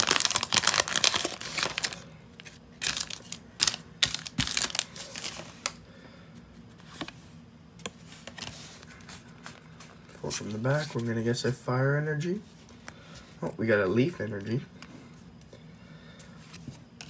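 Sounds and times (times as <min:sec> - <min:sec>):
foil wrapper crinkling and tearing: 0:00.0 - 0:02.1, 0:02.8 - 0:05.8
cards rustling and snapping: 0:00.0 - 0:05.8.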